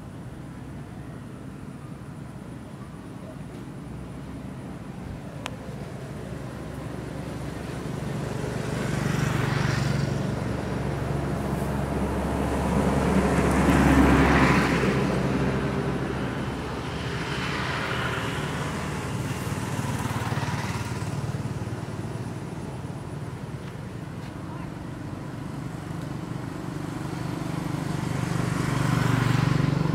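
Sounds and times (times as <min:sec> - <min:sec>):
vehicle passing by: 0:05.8 - 0:24.7, 0:25.4 - 0:29.9.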